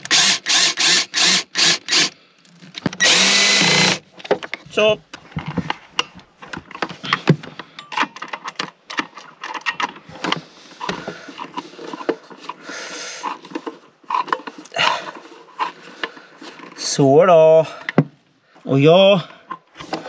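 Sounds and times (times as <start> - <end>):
plastic and wood clicks and knocks: 2.6 - 3.1, 4.1 - 12.6, 17.8 - 18.2.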